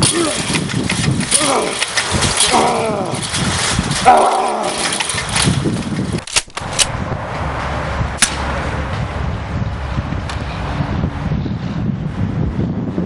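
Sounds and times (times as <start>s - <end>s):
zombie groan: 1.3s - 3.3s
handgun shot: 8.2s - 8.4s.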